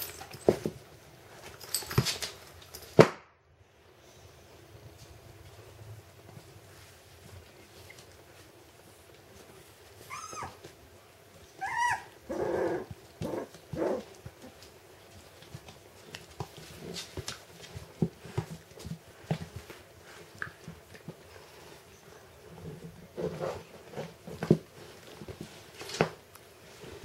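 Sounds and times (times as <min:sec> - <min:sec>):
puppies play growling: 0:07.4 - 0:27.0
puppy yelps: 0:10.0 - 0:10.6, 0:11.6 - 0:12.9
paws clicking on wooden floor: 0:12.8 - 0:26.5.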